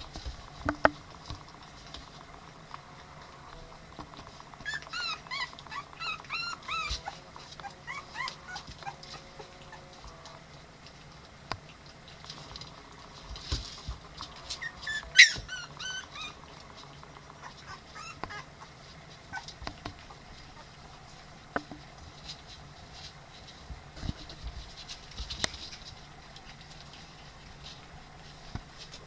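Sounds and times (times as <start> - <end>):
puppies yelping: 4.5 - 9.9, 14.6 - 16.5, 17.3 - 20.8.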